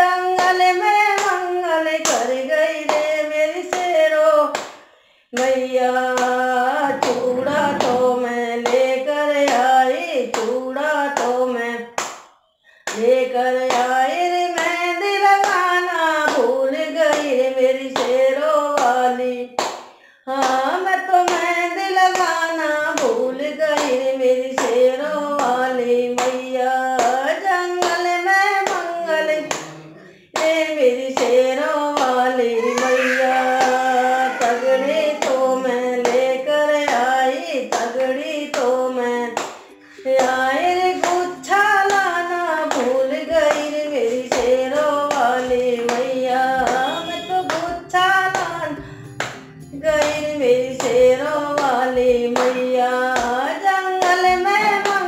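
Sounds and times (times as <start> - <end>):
woman singing: 0.0 - 12.0, 12.7 - 55.0
hands clapping: 4.5 - 4.8, 12.0 - 13.1, 16.3 - 16.5, 19.6 - 21.5, 28.6 - 29.8, 32.0 - 32.2, 33.5 - 36.3, 39.4 - 40.4, 41.9 - 51.0, 51.6 - 55.0.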